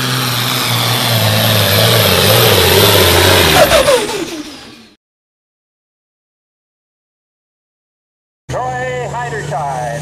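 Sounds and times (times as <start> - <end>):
tractor diesel engine under load: 0.0 - 5.0.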